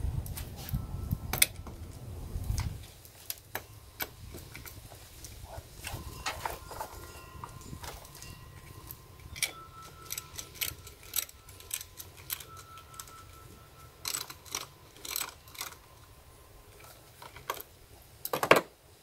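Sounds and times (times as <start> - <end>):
ratchet wrench clicking: 9.3 - 13.2, 14.0 - 15.8.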